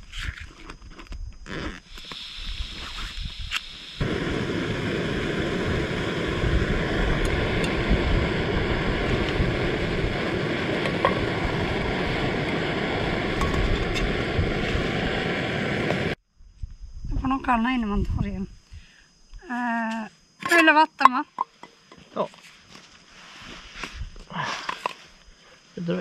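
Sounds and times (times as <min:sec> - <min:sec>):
match strike: 0:01.5 - 0:07.9
gas burner rushing: 0:01.8 - 0:16.2.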